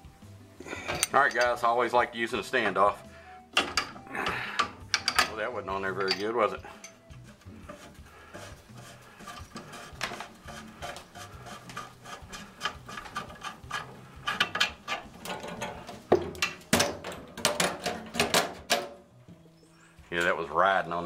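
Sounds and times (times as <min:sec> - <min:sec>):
metal fitting clicking and rattling: 0:00.7 - 0:01.7, 0:03.5 - 0:19.0
metal line clattering against cabinet: 0:00.7 - 0:01.7, 0:03.5 - 0:07.1, 0:07.7 - 0:19.0.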